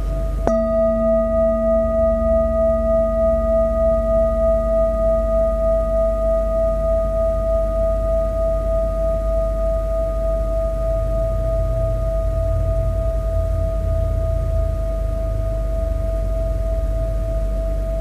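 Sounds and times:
metal singing bowl ringing: 0:00.0 - 0:18.0.

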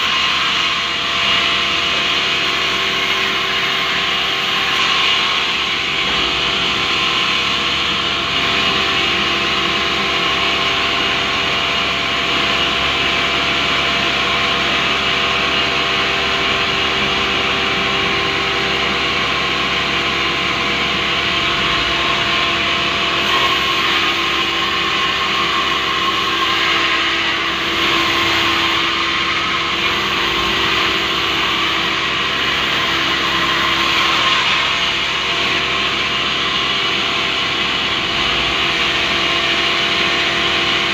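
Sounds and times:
band saw running: 0:00.0 - 0:40.9.

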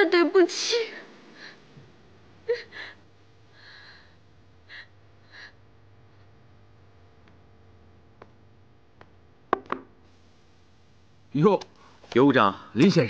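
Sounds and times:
woman sobbing: 0:02.4 - 0:05.6.

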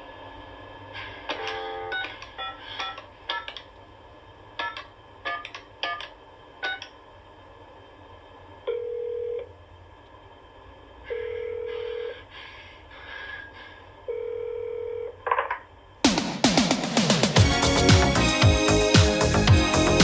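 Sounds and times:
telephone ringback tone: 0:08.7 - 0:09.5, 0:11.1 - 0:12.2, 0:14.1 - 0:15.2.

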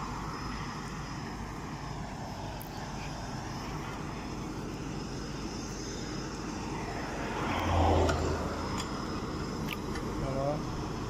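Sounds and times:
engine and traffic noise: 0:00.0 - 0:11.0
vehicle passing close: 0:06.6 - 0:09.8.

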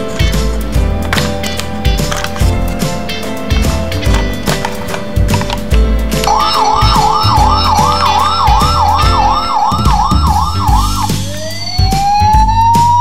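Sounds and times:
background music with beat: 0:00.0 - 0:13.0
toy siren warbling: 0:06.3 - 0:13.0.

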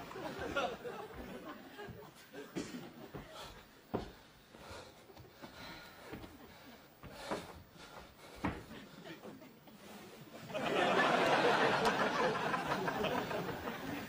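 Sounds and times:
audience laughter: 0:00.0 - 0:03.2, 0:10.2 - 0:14.0.

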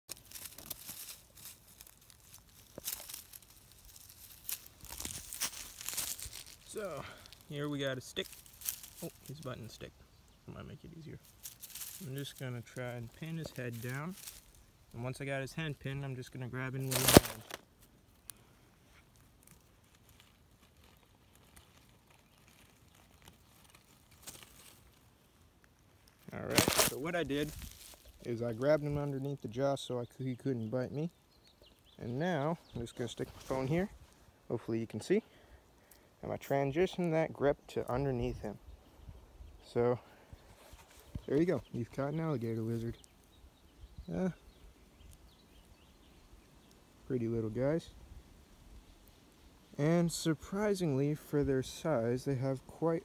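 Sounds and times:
dry leaves rustling and crackling: 0:00.1 - 0:09.9, 0:10.9 - 0:30.0, 0:32.6 - 0:34.4, 0:40.4 - 0:43.6.

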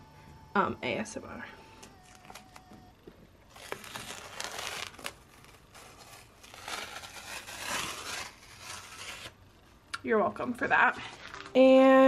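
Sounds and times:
tape peeling off: 0:01.8 - 0:02.8, 0:03.5 - 0:09.4.

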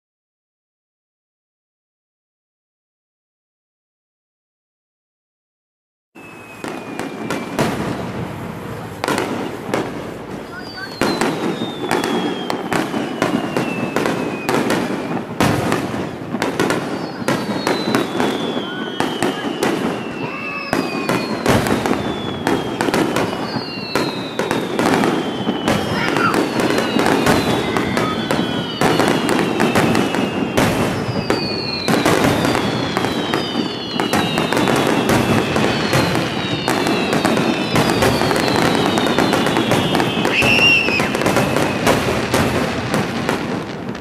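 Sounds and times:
falling firework whistles: 0:06.2 - 0:44.0
firework bursts and crackling: 0:06.2 - 0:44.0.

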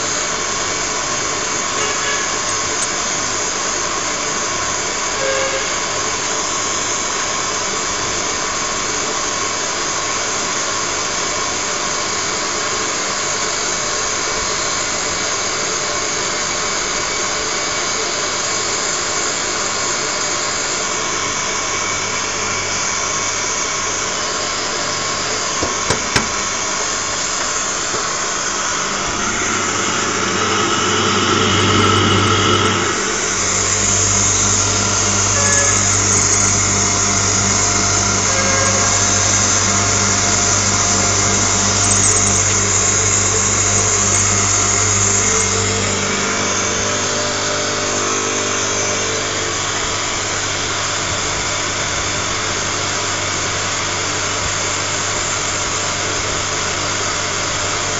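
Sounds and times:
electric grinding mill whirring: 0:18.6 - 0:57.9.

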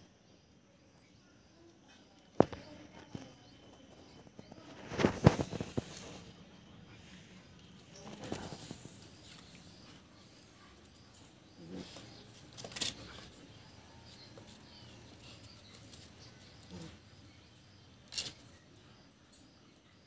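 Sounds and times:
faint bird chirping: 0:00.0 - 0:20.0
dogs scuffling at play: 0:07.7 - 0:17.0.

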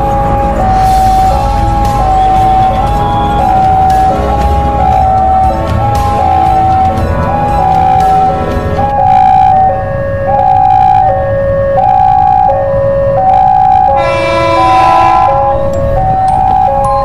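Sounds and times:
level crossing two-tone alarm: 0:00.0 - 0:17.0
train horn: 0:13.7 - 0:15.7.

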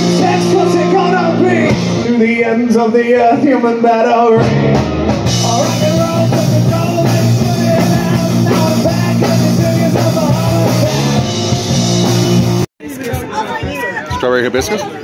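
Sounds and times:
live rock band playing: 0:00.0 - 0:14.1.

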